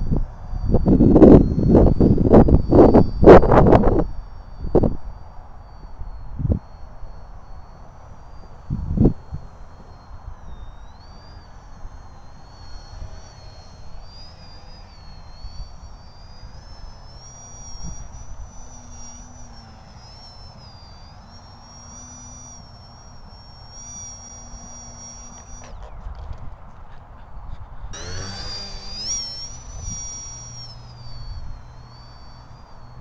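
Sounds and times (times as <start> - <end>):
wind rumble on microphone: 0.0 - 6.7, 8.2 - 19.2
model plane motor whining: 0.0 - 27.1, 27.9 - 33.0.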